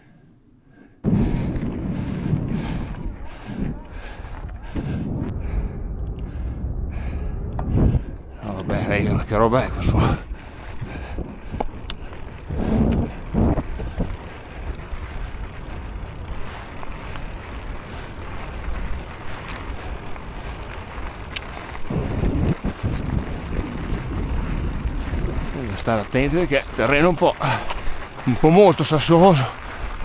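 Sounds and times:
low rumble: 0:01.0 - 0:26.8
bike rattling: 0:08.0 - 0:30.0
tyres crunching over rocks: 0:10.4 - 0:30.0.

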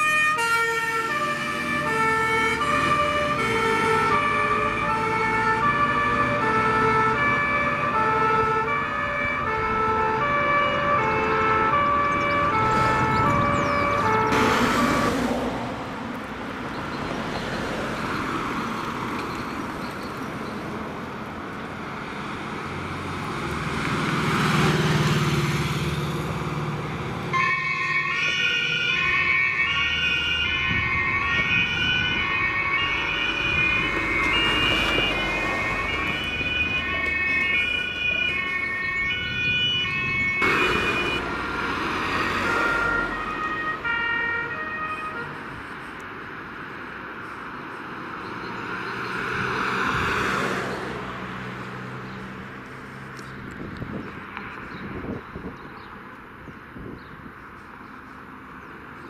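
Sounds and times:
two-tone sirens: 0:00.0 - 0:16.0, 0:23.3 - 0:52.0
passing traffic: 0:00.0 - 0:59.0.

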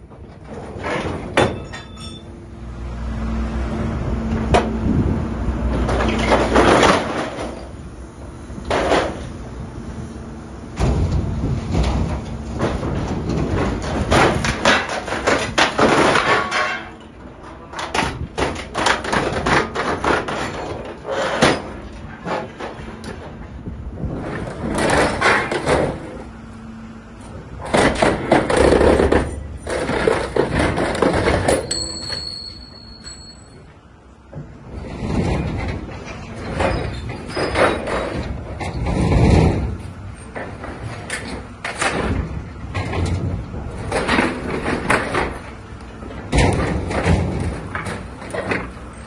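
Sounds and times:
steel frame crumpling with bangs: 0:05.8 - 0:07.9, 0:10.7 - 0:26.3, 0:27.6 - 0:32.3, 0:34.4 - 0:49.0.

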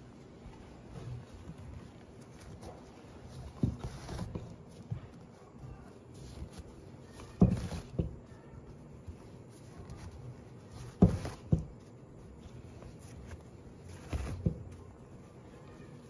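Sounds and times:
fabric rustling: 0:00.0 - 0:16.0
soft thumps on loom: 0:07.1 - 0:08.4, 0:10.0 - 0:11.9.

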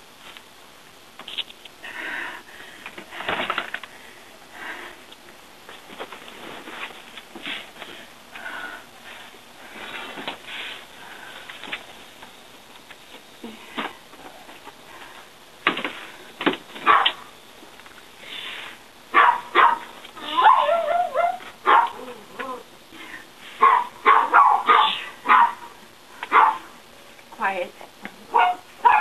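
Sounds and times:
dog barking: 0:16.8 - 0:17.2, 0:19.1 - 0:22.0, 0:23.6 - 0:25.7, 0:26.3 - 0:26.7, 0:28.3 - 0:29.0
dog whining: 0:20.2 - 0:22.2.

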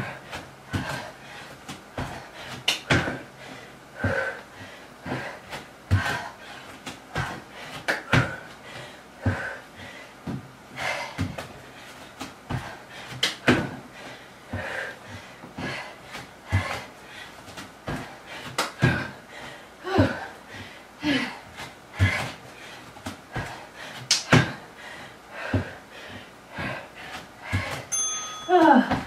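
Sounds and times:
woman breathing hard: 0:00.0 - 0:29.0
thuds on exercise mat: 0:13.4 - 0:13.8, 0:24.3 - 0:24.6.

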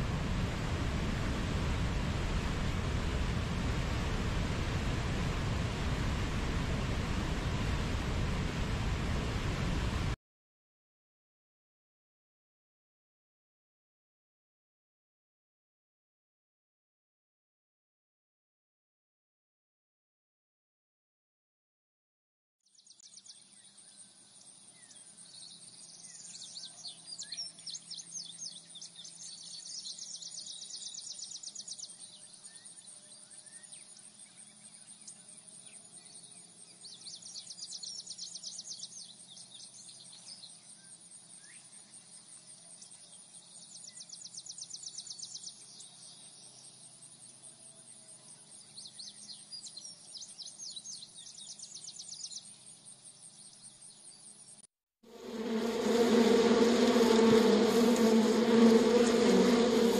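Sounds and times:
insects trilling: 0:55.1 - 0:59.9.

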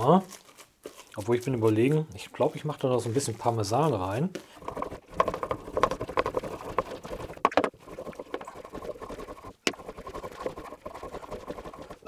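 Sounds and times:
cheese grating on steel grater: 0:03.4 - 0:12.0.

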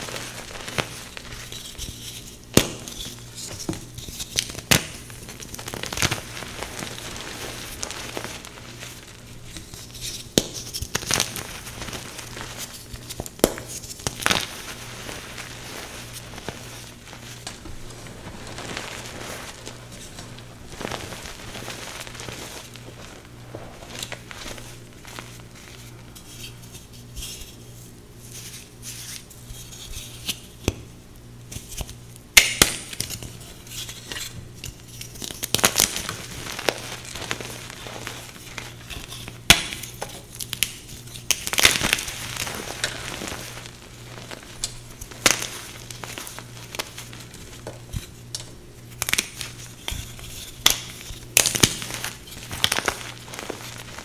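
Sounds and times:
hands crunching chalk blocks: 0:33.8 - 0:54.0.

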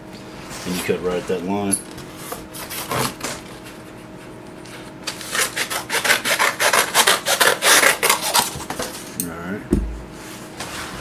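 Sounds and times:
scissors cutting cardboard: 0:02.6 - 0:03.4, 0:05.1 - 0:08.9.

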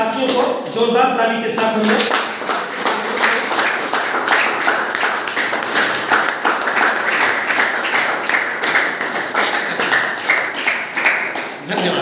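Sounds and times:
group applauding: 0:01.5 - 0:12.0.

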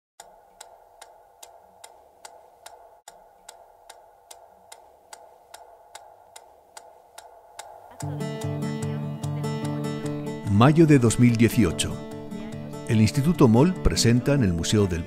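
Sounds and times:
clock ticking: 0:00.2 - 0:14.9
plucked guitar music: 0:07.9 - 0:15.0.

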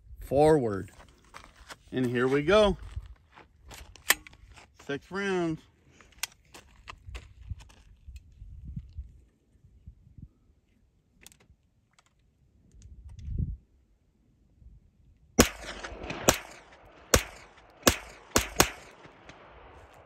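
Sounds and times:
gunshots with echo: 0:15.4 - 0:20.0.

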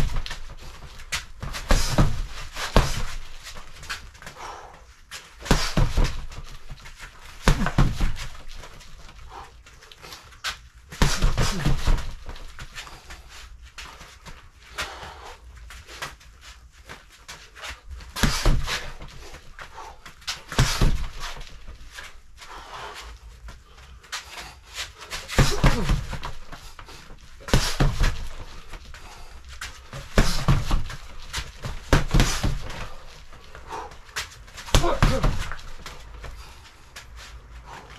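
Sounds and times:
boxer's sharp breaths: 0:00.0 - 0:37.9
gloved punches thudding on dummy: 0:01.4 - 0:03.3, 0:05.4 - 0:06.8, 0:07.4 - 0:08.6, 0:11.0 - 0:12.6, 0:18.2 - 0:19.3, 0:20.5 - 0:21.5, 0:25.3 - 0:26.6, 0:27.4 - 0:28.7, 0:29.9 - 0:33.0, 0:34.6 - 0:35.9.

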